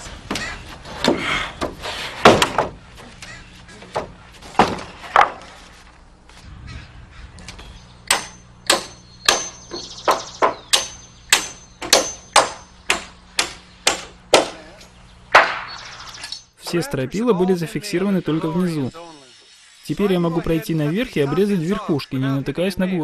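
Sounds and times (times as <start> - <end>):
hammer driving nails: 8.1 - 14.6.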